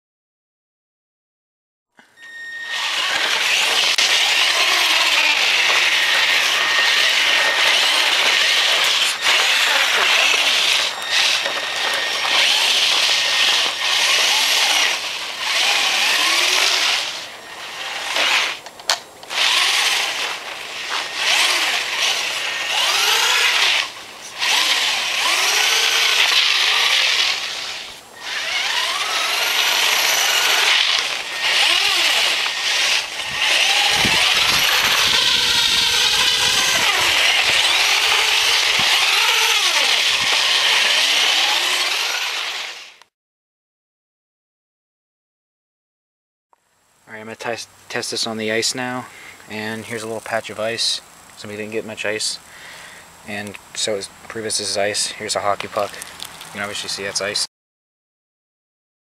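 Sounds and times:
rc truck electric motor whining: 0:02.0 - 0:43.1.

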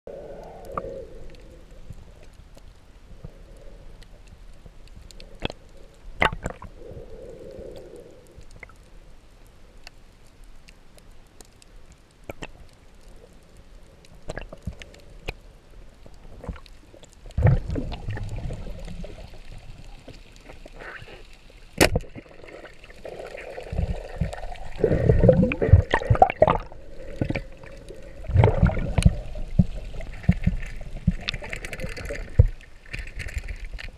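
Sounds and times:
underwater water wash: 0:00.1 - 0:33.9
sharp underwater clicks: 0:00.3 - 0:08.9, 0:09.8 - 0:15.4, 0:16.0 - 0:33.9
bubbling: 0:05.1 - 0:08.9, 0:16.0 - 0:33.9.

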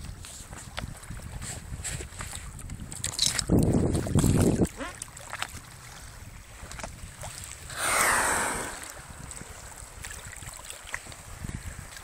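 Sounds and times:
water lapping against kayak: 0:00.0 - 0:12.0
wind on microphone: 0:00.0 - 0:12.0
water clicks and drips: 0:02.2 - 0:05.7
rushing splash of water: 0:07.4 - 0:12.0.

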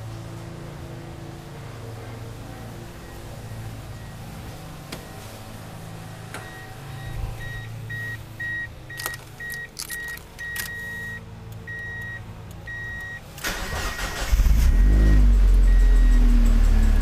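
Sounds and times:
car warning chime beeping: 0:06.4 - 0:17.0
key jingling into ignition: 0:08.9 - 0:11.1
starter cranking engine: 0:13.4 - 0:17.0.

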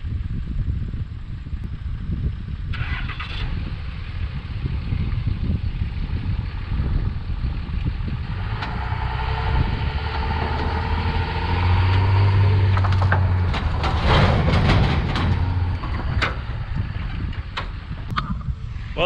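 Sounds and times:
truck engine humming: 0:00.3 - 0:19.0
tank scraping and clattering: 0:06.4 - 0:18.5.

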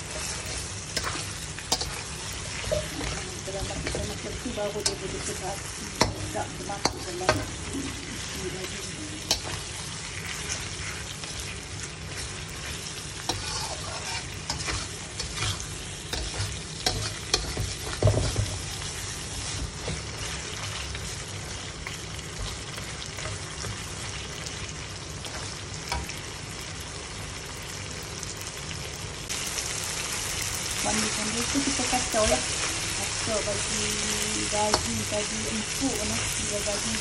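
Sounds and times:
metal spatula scraping a pan: 0:00.0 - 0:11.5, 0:12.1 - 0:21.0
meat sizzling in a wok: 0:00.0 - 0:37.0.

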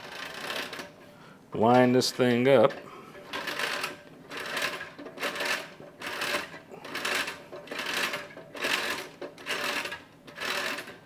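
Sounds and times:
hand crank mechanical clicking: 0:00.0 - 0:00.9, 0:03.3 - 0:11.0.

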